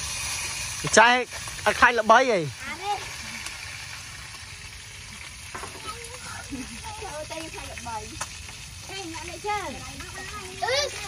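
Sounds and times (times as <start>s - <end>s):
fish sizzling in hot oil: 0.0s - 11.0s.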